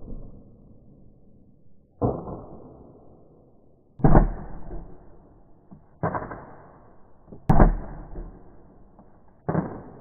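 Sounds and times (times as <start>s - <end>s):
airsoft shotgun shots: 4.0s - 10.0s
pellets striking target: 4.0s - 10.0s.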